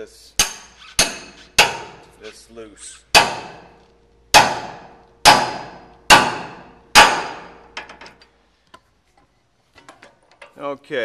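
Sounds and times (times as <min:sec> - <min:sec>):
hammer striking metal: 0:00.4 - 0:02.1, 0:03.1 - 0:08.2.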